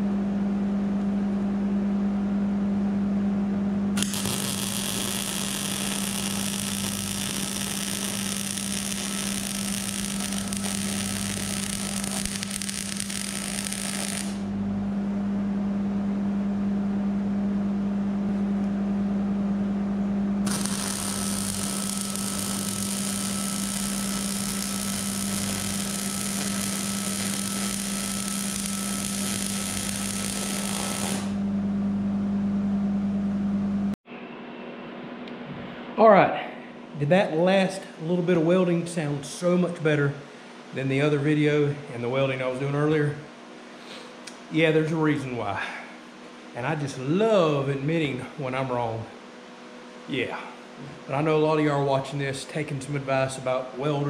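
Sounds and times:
steady low hum: 0:00.0 - 0:54.0
welding arc crackling: 0:04.0 - 0:14.5, 0:20.4 - 0:31.4.

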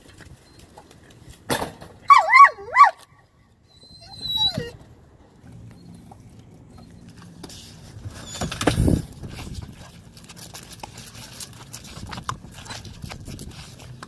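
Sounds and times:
dog paws on asphalt: 0:04.3 - 0:14.0.

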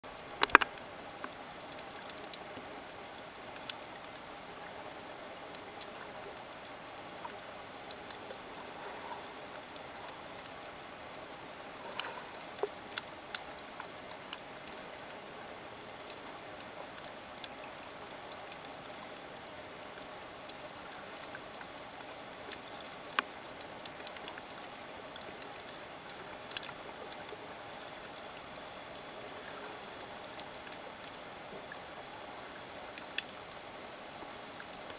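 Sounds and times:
sharp underwater clicks: 0:00.1 - 0:31.8, 0:32.6 - 0:34.8
underwater hiss: 0:11.5 - 0:13.2.

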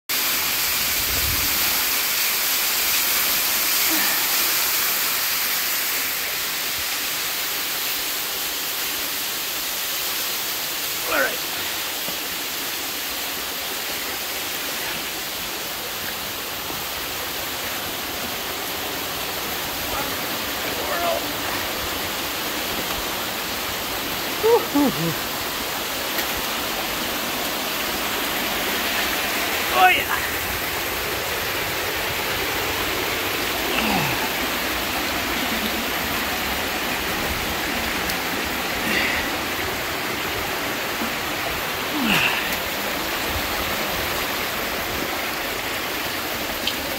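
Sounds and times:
water running over rocks: 0:00.1 - 0:46.9
water dripping: 0:25.8 - 0:29.7, 0:33.0 - 0:46.9.

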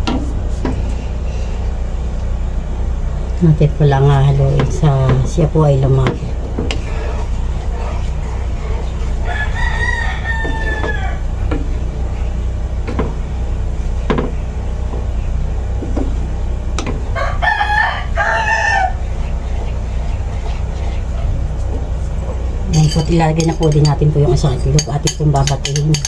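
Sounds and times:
steady low hum: 0:00.0 - 0:26.0
rooster crowing: 0:09.2 - 0:11.4, 0:17.1 - 0:19.0.

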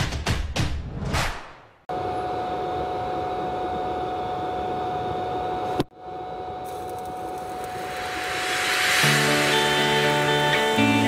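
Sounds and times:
constant high whine: 0:01.9 - 0:11.0
welding arc hissing: 0:06.7 - 0:11.0.

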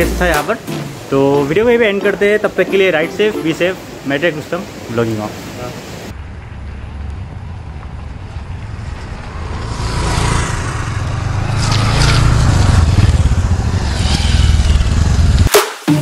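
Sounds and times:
motorcycle engines passing by: 0:06.2 - 0:15.5.

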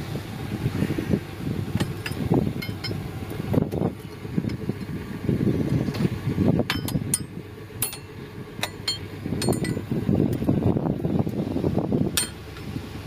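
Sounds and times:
steady low rumble: 0:00.0 - 0:13.0
wrench clinking on metal pipes: 0:01.8 - 0:03.0, 0:06.7 - 0:09.9, 0:12.2 - 0:12.4.

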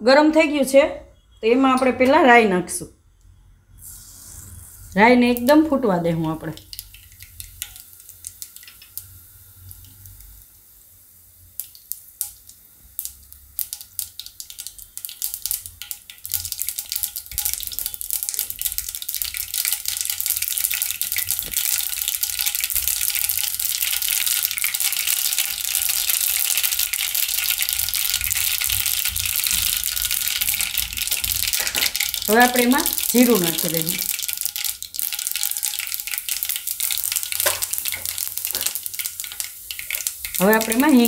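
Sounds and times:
mustard seeds popping in hot oil: 0:05.2 - 0:41.0.

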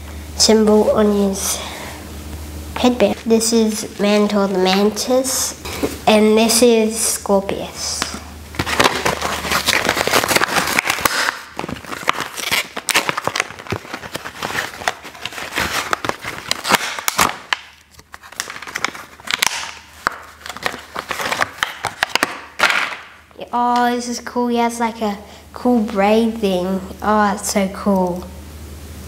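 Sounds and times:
plastic packaging crinkling: 0:08.0 - 0:23.1.

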